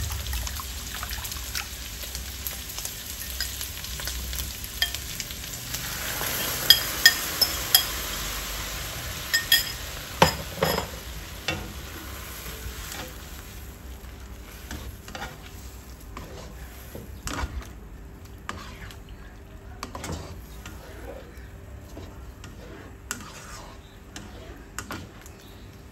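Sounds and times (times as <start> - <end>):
shrimp sizzling in a wok: 0.0 - 17.7
utensils clinking against pan: 4.8 - 5.0, 6.2 - 8.2, 9.2 - 11.7
spatula stirring: 6.2 - 8.1, 14.0 - 25.4.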